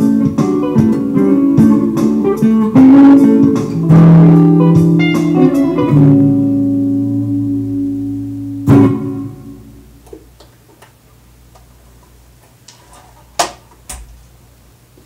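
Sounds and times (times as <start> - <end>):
electric guitar chords: 0.0 - 10.4.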